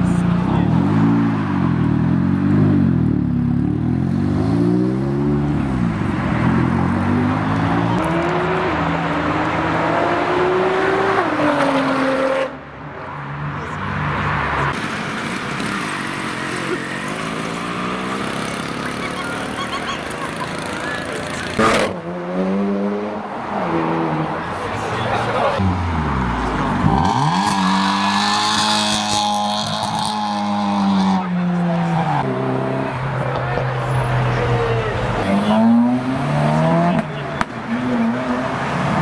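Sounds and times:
car engines revving: 0.0 - 39.0.

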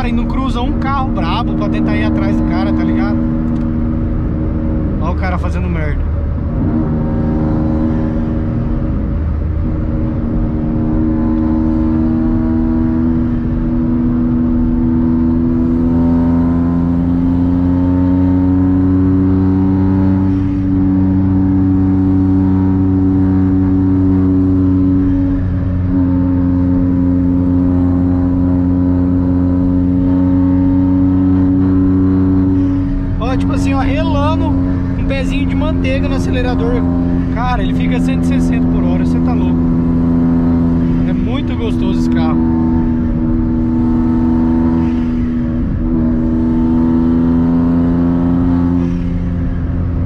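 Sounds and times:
car engine and exhaust from inside: 0.0 - 50.0.

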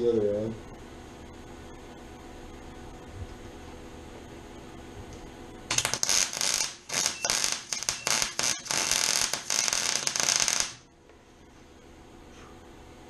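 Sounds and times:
welder arc crackling: 5.1 - 10.9.

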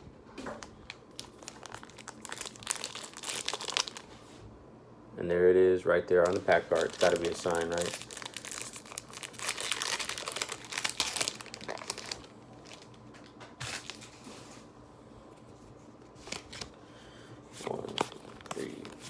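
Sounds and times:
plastic foil packaging crackling: 0.8 - 4.1, 6.2 - 13.0, 13.6 - 14.2, 17.7 - 19.0.

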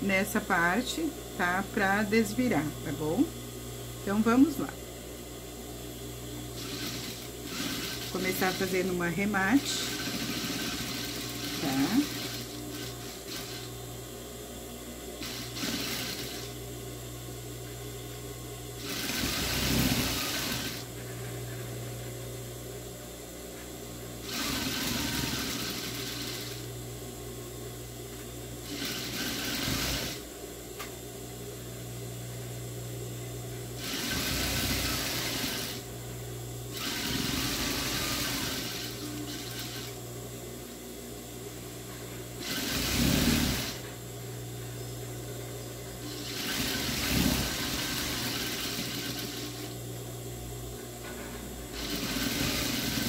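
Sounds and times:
sewing machine stitching: 6.6 - 13.7, 15.2 - 16.5, 18.8 - 20.9, 24.2 - 26.6, 28.7 - 30.2, 33.8 - 35.8, 36.8 - 40.0, 42.4 - 43.8, 46.1 - 49.7, 51.8 - 53.0
sewing machine motor humming: 6.6 - 13.8, 15.2 - 16.6, 18.8 - 20.9, 24.2 - 26.7, 28.6 - 30.2, 33.8 - 35.9, 36.7 - 40.0, 42.4 - 44.0, 46.0 - 49.8, 51.7 - 53.0.

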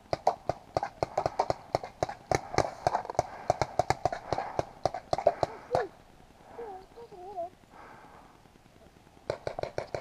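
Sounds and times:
paintball marker rapid fire: 0.1 - 5.7, 9.3 - 10.0.

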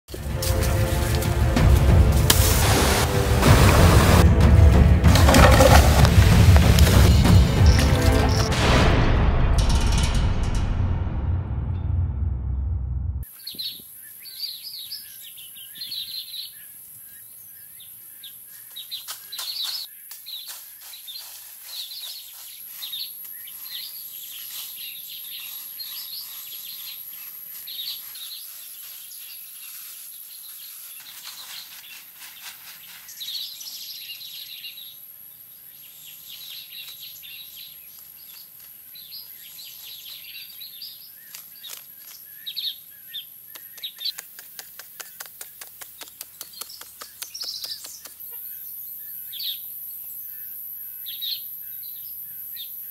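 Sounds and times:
birds chirping and calling: 13.3 - 52.9.

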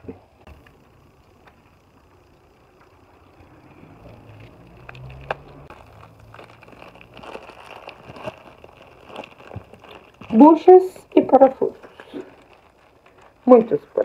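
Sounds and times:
small ticks: 0.5 - 5.7
plastic bag crinkling: 0.5 - 14.0.

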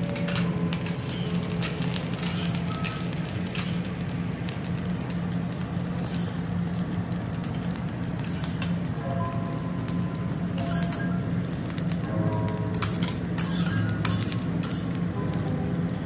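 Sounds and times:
rice sizzling on griddle: 0.0 - 16.0
metal spatulas scraping and tapping: 0.1 - 3.8, 6.0 - 6.3, 8.2 - 8.7, 12.7 - 15.0.

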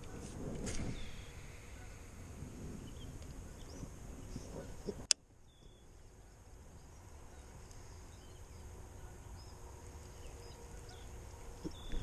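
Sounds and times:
faint bird chirps: 2.8 - 12.0.

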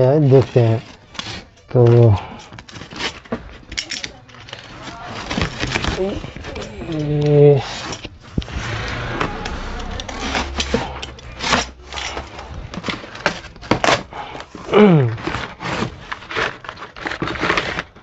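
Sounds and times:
short falling squeal: 8.4 - 12.8.

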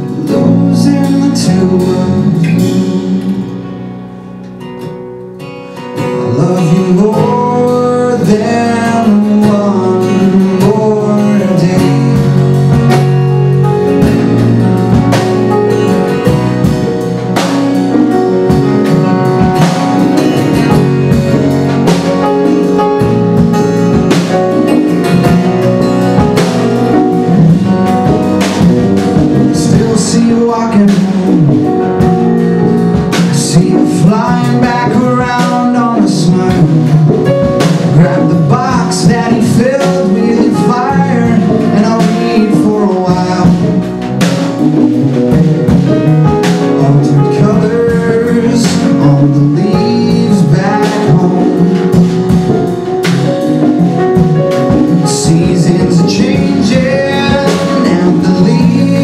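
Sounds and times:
man singing: 0.0 - 3.7, 6.0 - 13.2, 28.6 - 44.2, 46.4 - 52.5, 54.6 - 59.0
acoustic guitar: 0.0 - 59.0
live band playing: 0.0 - 59.0.

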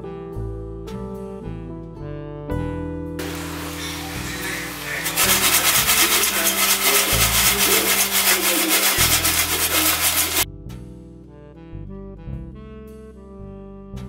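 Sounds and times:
popcorn shaken in metal basket: 3.2 - 10.4.

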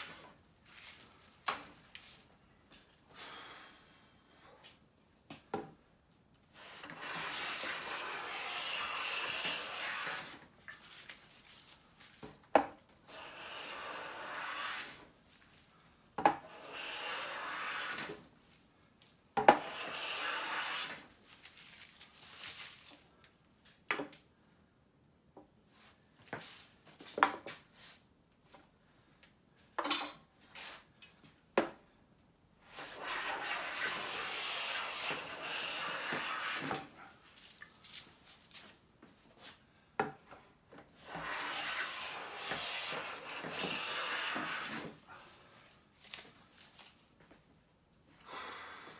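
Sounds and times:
hand plane cutting wood: 6.7 - 10.4, 13.1 - 15.0, 16.4 - 18.2, 19.4 - 21.0, 32.7 - 36.9, 41.0 - 45.0.

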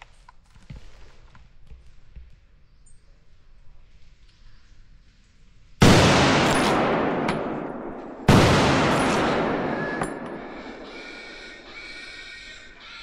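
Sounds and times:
rifle shots with long echo: 5.8 - 12.7.

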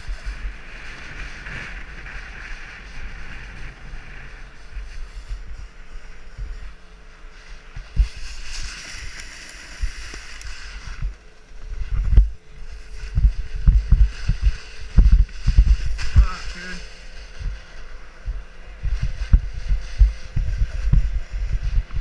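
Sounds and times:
snowboard scraping over snow: 0.0 - 22.0
wind rumble on microphone: 0.0 - 22.0
low thumps: 17.3 - 22.0.

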